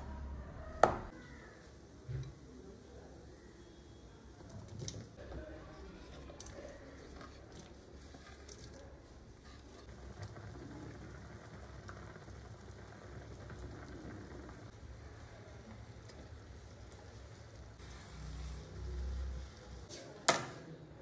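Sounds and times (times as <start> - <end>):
broth bubbling: 9.8 - 17.9.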